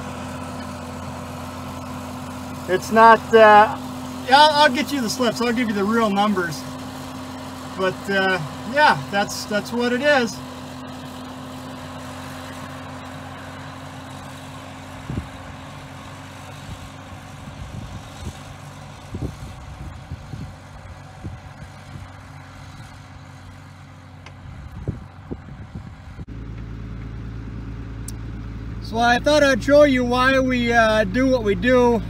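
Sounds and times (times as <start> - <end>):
tractor engine running: 0.0 - 32.0.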